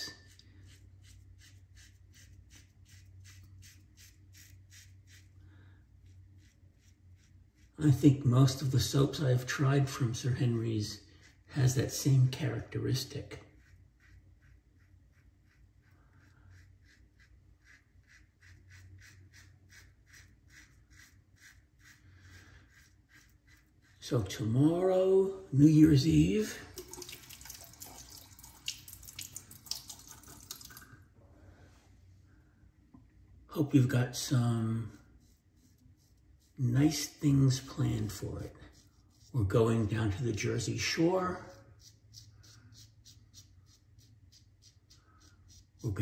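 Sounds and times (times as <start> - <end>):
razor scraping stubble: 10.4 - 26.0, 34.3 - 46.0.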